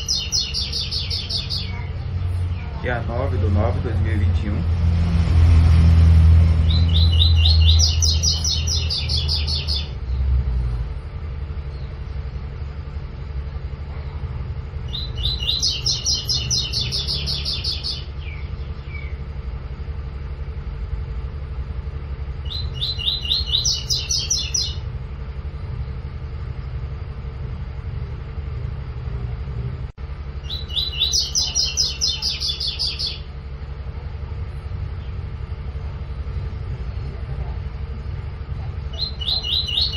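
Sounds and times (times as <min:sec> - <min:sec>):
low rumble: 0:00.0 - 0:39.9
bird singing high repeated notes: 0:06.6 - 0:10.2, 0:22.4 - 0:24.8.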